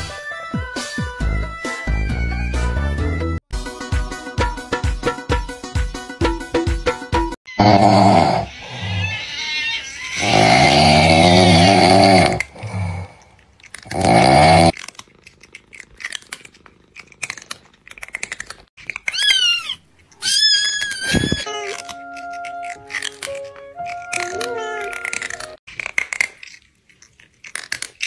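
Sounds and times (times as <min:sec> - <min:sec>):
loud snoring: 0:07.6 - 0:09.0, 0:10.2 - 0:13.2, 0:13.9 - 0:14.8
crackly clicks: 0:13.2 - 0:14.0, 0:14.7 - 0:21.1, 0:21.7 - 0:28.0.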